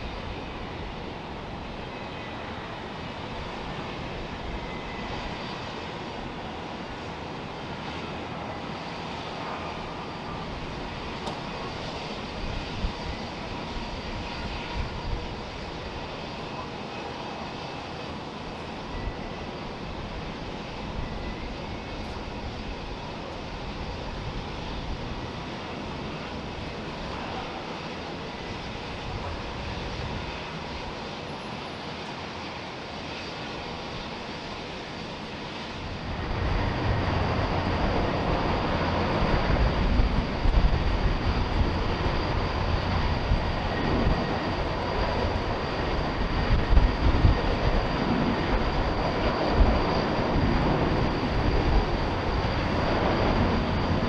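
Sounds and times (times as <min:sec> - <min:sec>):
jet engines running after landing: 0:00.0 - 0:54.0.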